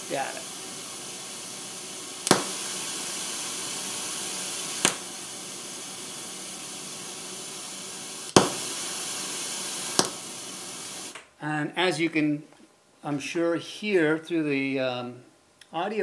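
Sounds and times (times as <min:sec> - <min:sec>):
pink noise hiss: 0:00.0 - 0:16.0.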